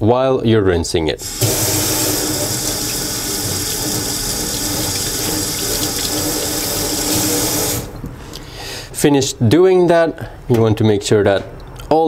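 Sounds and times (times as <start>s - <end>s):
tap water splashing into metal sink: 1.3s - 7.9s.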